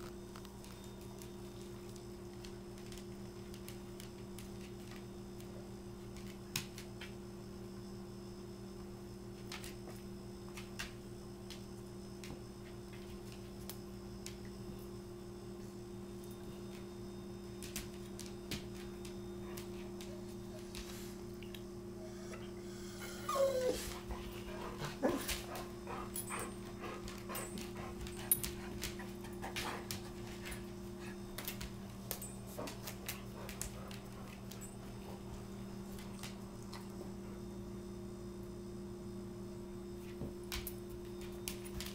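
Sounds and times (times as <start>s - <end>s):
low electrical hum: 0.0s - 41.9s
dog whining: 22.0s - 25.3s.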